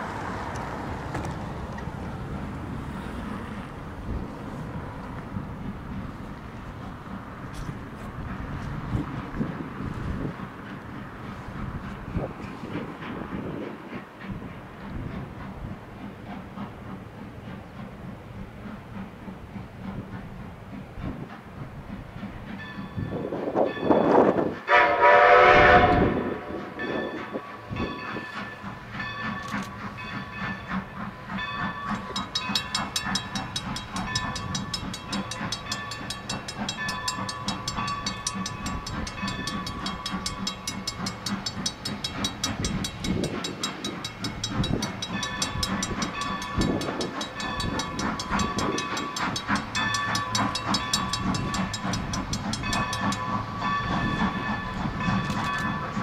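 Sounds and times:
steam locomotive exhaust beats: 0.0s - 56.0s
steam locomotive chime whistle: 22.6s - 56.0s.

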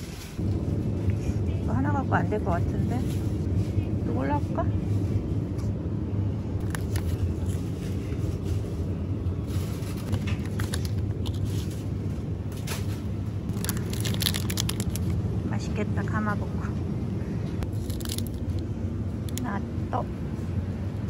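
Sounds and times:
low supermarket hum: 0.0s - 21.0s
plastic food packs crinkling: 6.6s - 7.6s, 9.6s - 11.9s, 13.5s - 15.2s, 17.6s - 18.7s.

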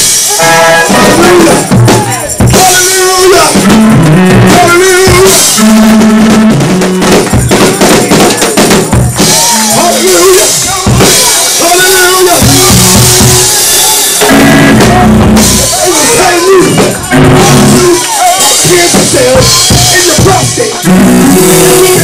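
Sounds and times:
drum kit with cymbals: 0.0s - 22.0s
held keyboard notes: 0.0s - 22.0s.

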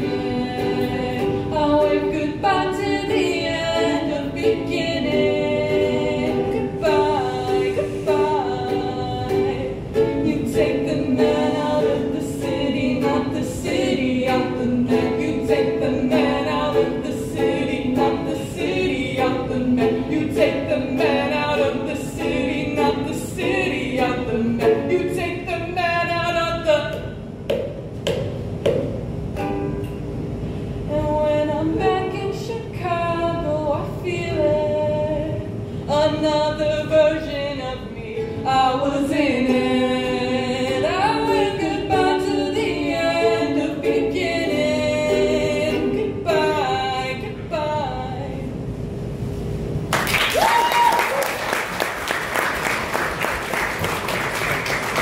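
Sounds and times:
woman singing: 0.0s - 27.2s, 30.9s - 48.6s
ukulele: 0.0s - 55.0s
audience applause: 49.9s - 55.0s
person whooping: 50.2s - 51.6s.

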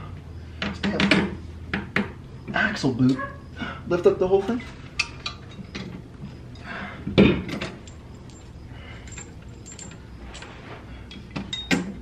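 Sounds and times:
metal clinks and taps: 5.0s - 12.0s
metal clunk: 7.1s - 8.0s.

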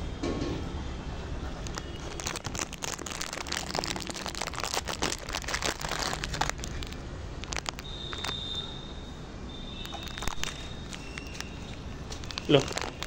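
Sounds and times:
dog crunching dry biscuits: 1.6s - 8.5s, 9.8s - 13.0s.

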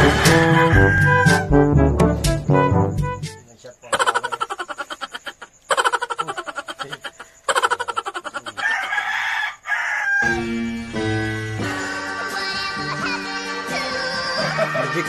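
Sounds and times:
music with steady bass: 0.0s - 3.4s
chicken clucking: 3.9s - 10.2s.

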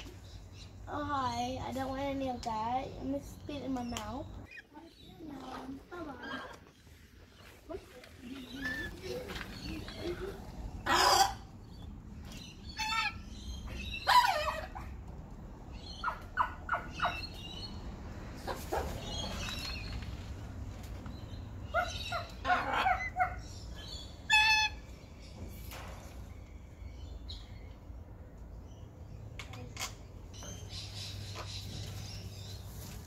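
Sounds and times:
parrot chirps and squawks: 10.8s - 11.8s, 12.6s - 14.9s, 21.7s - 24.9s.

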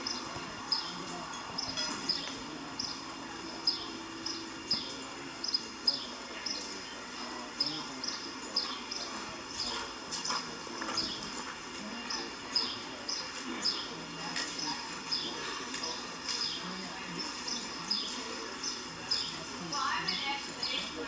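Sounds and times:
bird chirping: 0.0s - 11.4s.

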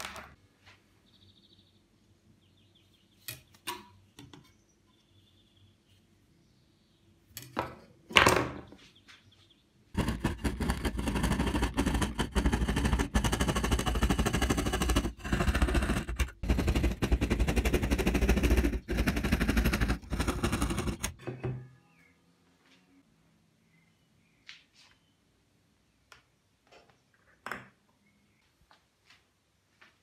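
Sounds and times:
hand saw cutting wood: 10.0s - 21.2s.

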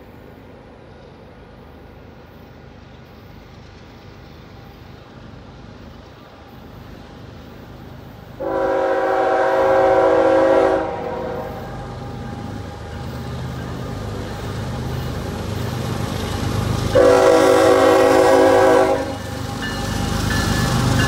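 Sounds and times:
freight train rumble: 0.0s - 21.0s
locomotive air horn chord: 8.4s - 11.8s, 17.0s - 19.2s.

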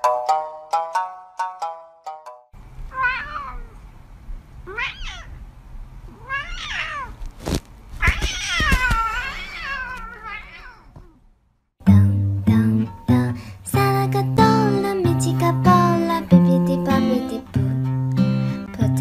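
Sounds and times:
cat meowing: 2.9s - 3.8s, 4.6s - 5.4s, 6.1s - 7.2s, 8.0s - 11.2s.

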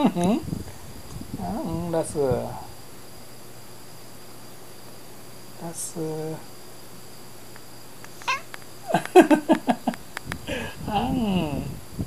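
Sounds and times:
cat meowing: 8.2s - 8.5s
person calling: 8.2s - 8.5s.

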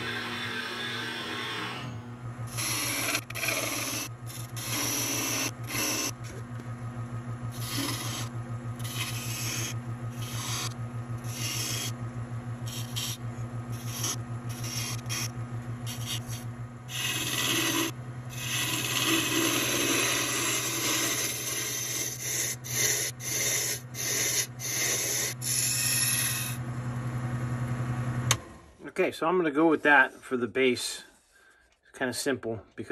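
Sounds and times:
turning tool scraping wood: 0.0s - 6.6s, 7.5s - 12.0s, 12.6s - 26.6s
lathe motor hum: 0.0s - 28.4s.

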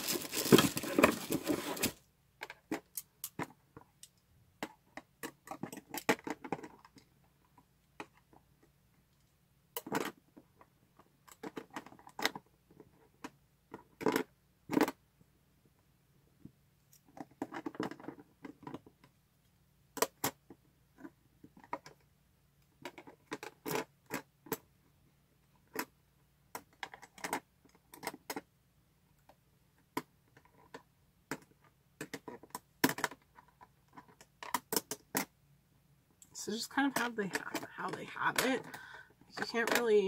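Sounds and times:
plastic lunch box clicks and clacks: 4.6s - 7.1s, 9.8s - 10.4s, 11.2s - 15.0s, 17.0s - 19.1s, 20.0s - 22.0s, 22.8s - 24.6s, 26.5s - 28.5s, 29.9s - 35.3s, 36.9s - 38.8s, 39.4s - 40.0s.

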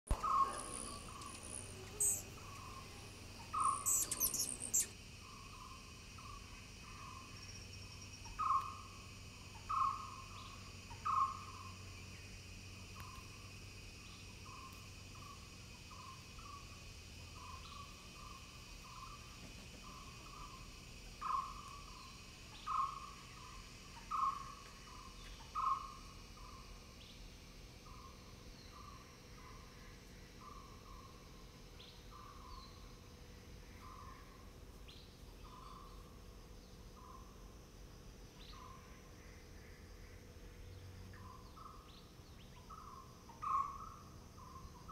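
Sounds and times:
bird hooting: 0.1s - 4.9s
high quick bird chirps: 0.1s - 4.9s
insect drone: 0.1s - 44.9s.

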